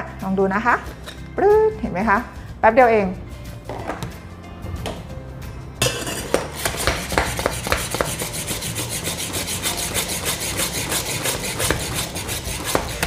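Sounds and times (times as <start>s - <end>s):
milk frother rasping strokes: 7.5s - 13.0s.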